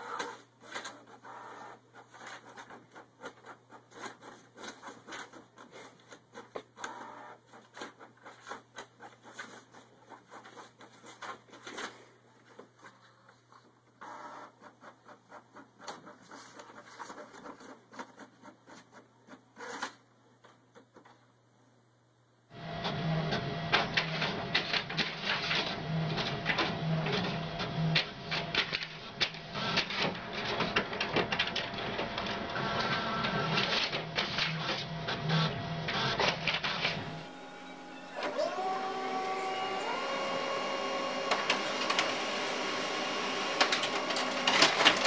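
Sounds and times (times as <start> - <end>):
inkjet printer printing: 0.0 - 5.4, 6.1 - 11.4, 14.0 - 19.0, 22.5 - 45.0
paper sheets rustling: 7.5 - 13.6, 23.3 - 34.8, 35.9 - 45.0
printer clicks: 35.9 - 45.0.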